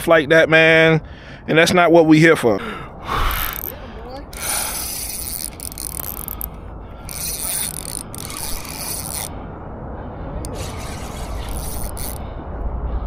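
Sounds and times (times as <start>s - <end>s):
low wind rumble: 0.0s - 13.0s
fishing reel whirring and clicking: 3.1s - 9.4s, 10.4s - 12.2s.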